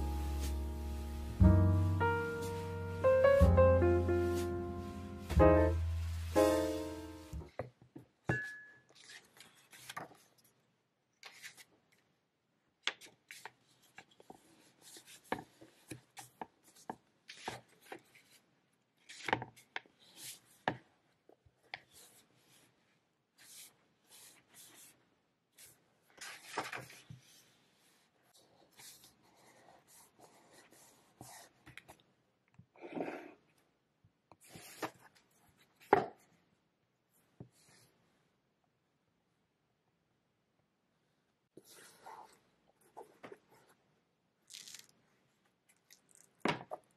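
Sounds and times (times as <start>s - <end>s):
paper pages rustling: 9.0s - 10.6s, 11.2s - 11.8s, 13.0s - 18.4s, 25.6s - 30.0s, 34.4s - 36.0s, 44.5s - 44.9s.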